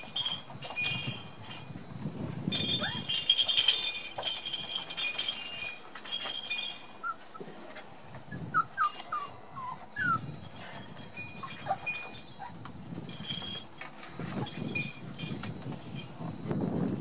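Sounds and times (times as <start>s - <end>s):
puppies squeaking and whimpering: 2.6s - 3.6s, 7.0s - 7.4s, 8.3s - 12.6s.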